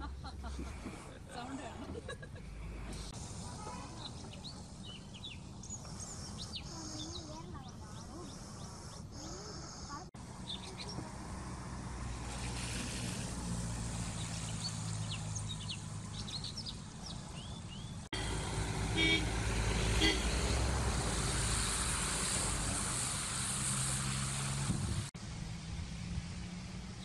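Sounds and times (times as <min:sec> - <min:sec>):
birds chirping: 0:01.1 - 0:11.2, 0:12.2 - 0:18.3
low engine hum: 0:09.7 - 0:27.0
vehicle horn toots: 0:18.2 - 0:20.7.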